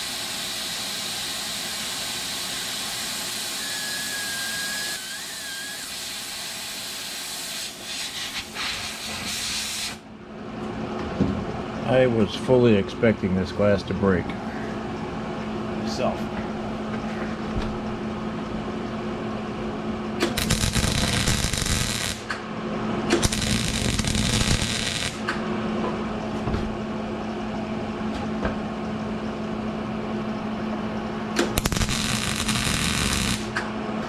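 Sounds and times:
steady hum: 10.0 - 34.0
welder arc crackling: 20.2 - 22.4, 23.2 - 25.3, 31.4 - 33.6.

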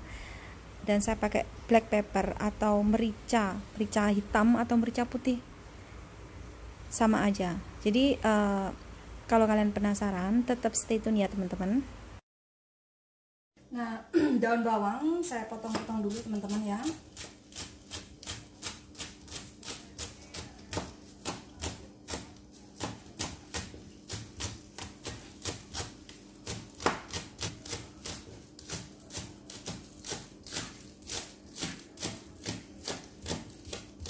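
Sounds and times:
knife chopping on cutting board: 15.7 - 34.0.

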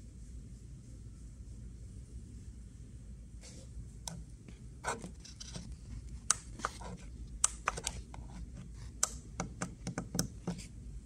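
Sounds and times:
steady low hum: 0.0 - 11.0
sharp clicks and taps: 6.2 - 8.2, 9.0 - 10.6.

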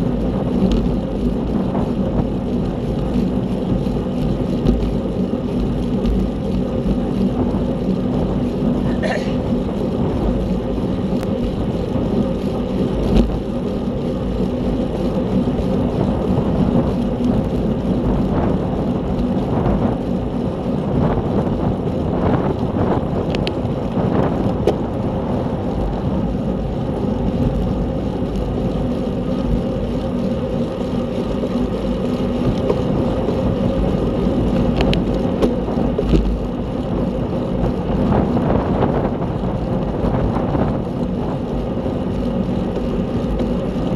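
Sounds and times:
road noise: 0.0 - 43.9
wind rush: 0.0 - 43.9
faint ticks: 23.3 - 23.6, 34.7 - 36.4.

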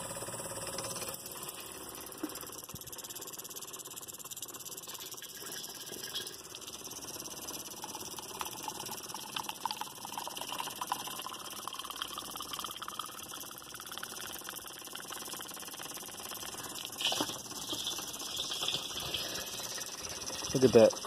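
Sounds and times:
fuel pump buzzing: 0.0 - 21.0
liquid splashing into jar: 16.8 - 20.6.

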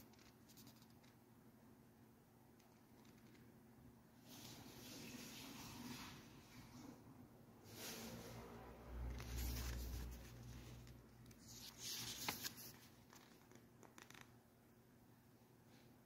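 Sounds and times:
paper pages rustling: 9.1 - 14.3.

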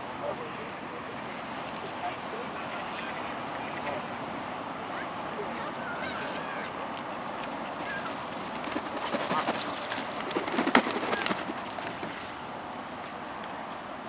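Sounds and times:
outdoor background noise: 0.0 - 14.0
water splashing: 6.2 - 13.4
bird calls: 7.6 - 12.4
wings flapping: 7.8 - 12.4.

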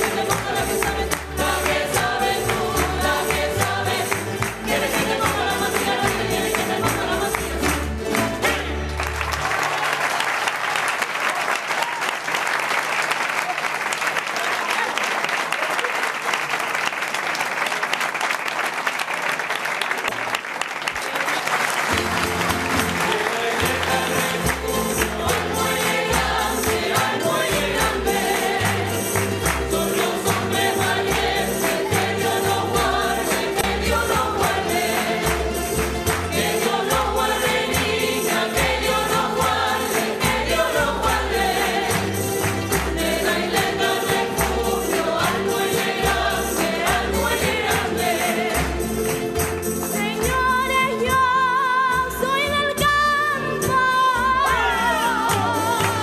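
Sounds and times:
voices singing together: 0.0 - 9.1, 22.3 - 56.0
steady beat with tambourine: 23.6 - 50.6.

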